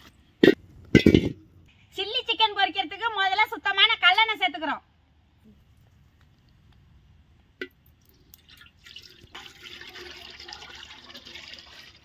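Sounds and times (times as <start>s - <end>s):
oil pouring into wok: 8.3s - 12.0s.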